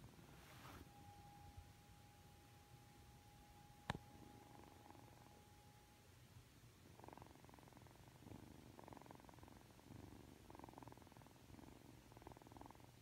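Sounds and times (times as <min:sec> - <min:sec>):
kitten purring: 0:04.0 - 0:05.8, 0:06.8 - 0:13.0.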